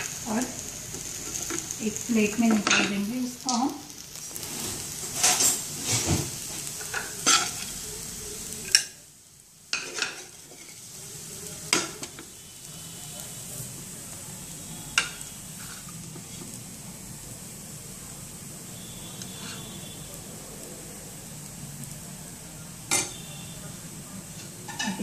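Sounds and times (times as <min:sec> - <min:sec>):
spatula scraping rice in a pan: 0:01.0 - 0:01.8, 0:04.3 - 0:07.8, 0:09.8 - 0:11.0, 0:14.9 - 0:16.6, 0:19.1 - 0:20.0.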